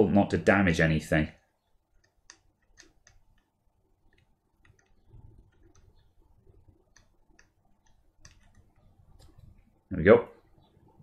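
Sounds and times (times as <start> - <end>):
soldering iron ticks and clicks: 2.0 - 3.5, 4.1 - 6.1, 6.8 - 8.9.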